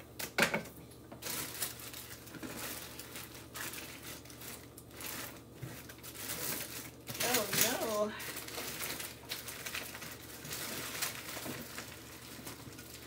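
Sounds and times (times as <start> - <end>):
packaging rustling and crinkling: 1.1 - 13.0.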